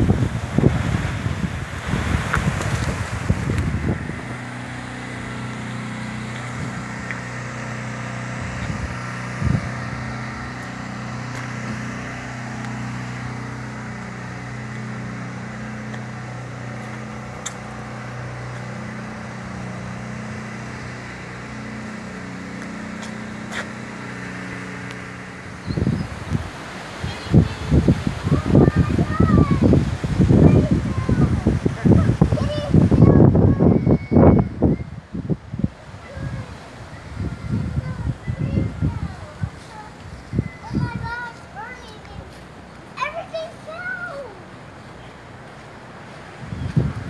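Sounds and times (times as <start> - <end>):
engine running steadily: 0.0 - 47.0.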